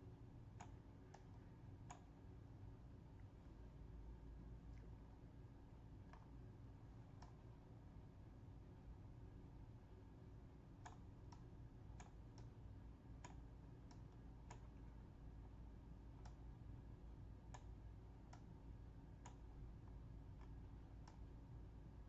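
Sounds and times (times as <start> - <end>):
steady low hum: 0.0 - 22.0
computer mouse clicking: 0.5 - 2.1, 6.0 - 6.4, 7.0 - 7.5, 10.7 - 15.0, 16.2 - 16.5, 17.4 - 21.4.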